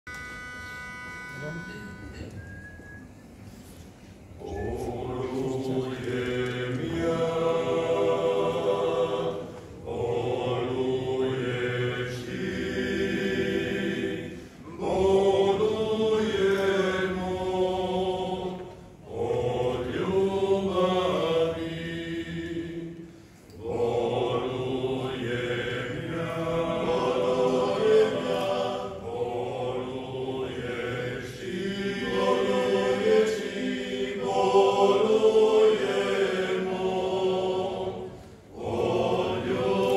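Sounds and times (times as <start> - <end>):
men singing a cappella in harmony: 4.4 - 39.9.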